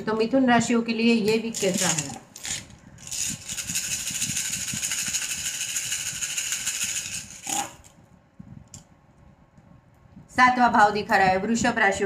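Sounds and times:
shells shaken in hands rattling: 0:01.4 - 0:07.8.

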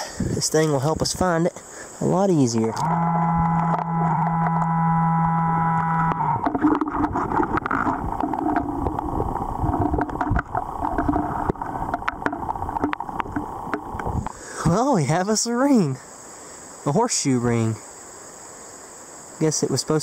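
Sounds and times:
metal detector buzzing alarm: 0:02.6 - 0:07.9
gravel and stones grinding: 0:02.6 - 0:14.4.

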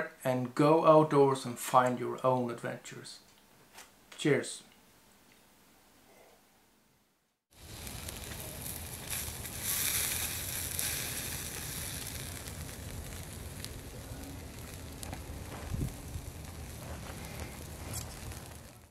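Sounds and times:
burger patty sizzling on grill: 0:07.5 - 0:18.9
wood fire crackling: 0:07.5 - 0:18.9.

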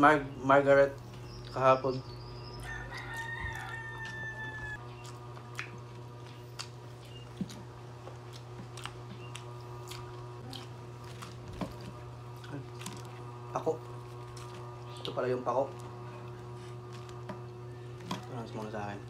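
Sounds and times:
steady low hum: 0:00.0 - 0:19.0
chewing: 0:02.5 - 0:18.8
crisp crunches: 0:08.2 - 0:17.3.

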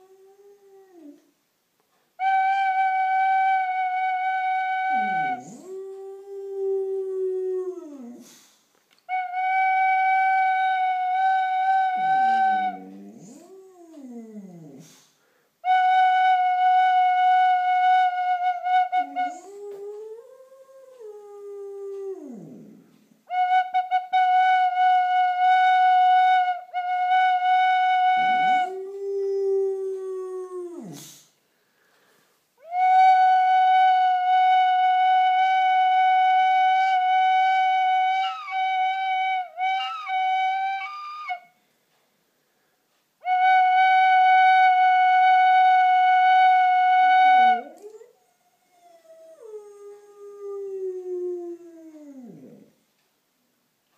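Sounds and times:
dog howling: 0:04.2 - 0:08.2, 0:10.4 - 0:14.8, 0:19.0 - 0:22.8, 0:28.0 - 0:31.0, 0:47.5 - 0:52.7
tin whistle: 0:32.6 - 0:41.5.

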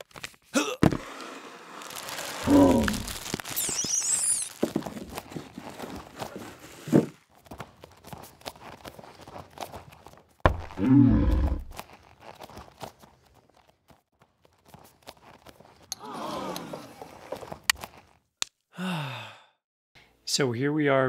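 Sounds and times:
cardboard and tissue paper rustling: 0:00.0 - 0:07.3
short squeaks: 0:03.4 - 0:04.6.

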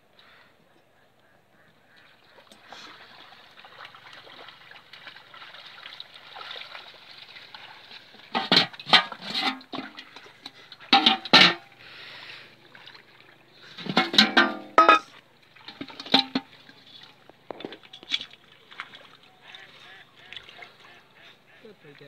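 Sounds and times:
water sloshing: 0:01.8 - 0:22.0
clattering splashes in metal pot: 0:02.4 - 0:11.8, 0:13.6 - 0:19.2
wet plants rustling: 0:15.0 - 0:21.6.

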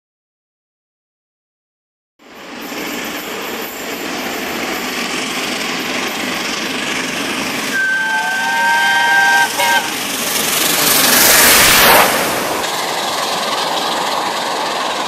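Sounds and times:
steam locomotive exhaust: 0:02.4 - 0:15.0
steam whistle: 0:07.7 - 0:10.0.

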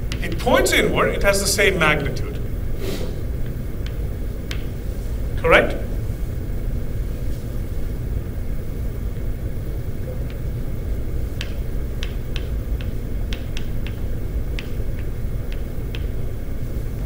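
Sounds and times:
low room noise rumble: 0:00.0 - 0:17.0
chalk tapping on blackboard: 0:03.8 - 0:04.8, 0:11.3 - 0:16.2.

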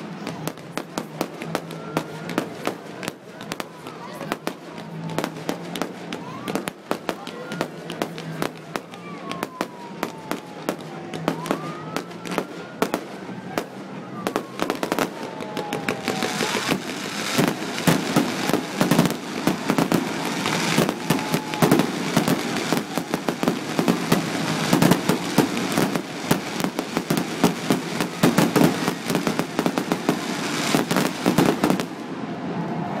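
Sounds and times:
fireworks bursting: 0:00.0 - 0:32.3
falling firework whistle: 0:14.2 - 0:33.0.

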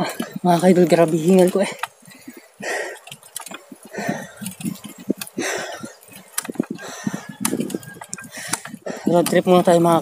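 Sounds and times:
bicycle rattling and clicking: 0:00.0 - 0:10.0
person breathing hard: 0:01.8 - 0:09.3.

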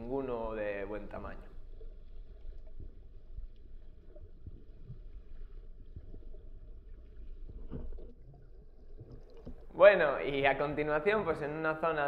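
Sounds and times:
underwater water rumble: 0:00.0 - 0:11.9
faint clicks and knocks: 0:01.8 - 0:09.7.

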